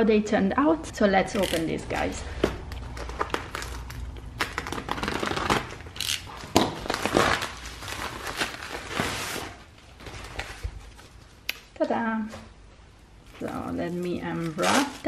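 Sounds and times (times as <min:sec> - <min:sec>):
cardboard package scraping: 0:02.8 - 0:11.2
plastic mailer crinkling: 0:02.8 - 0:11.2, 0:13.8 - 0:15.0.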